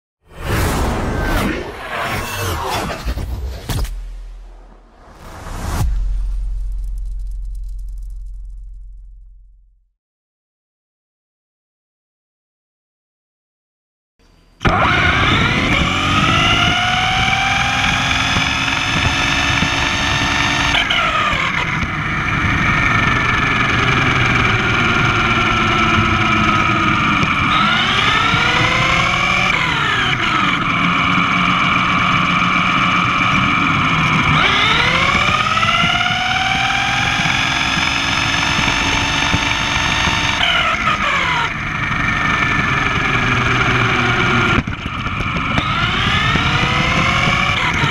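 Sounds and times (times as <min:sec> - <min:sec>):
steady low rumble: 0:00.3 - 0:09.9
rc car electric motor whine: 0:14.6 - 0:47.9.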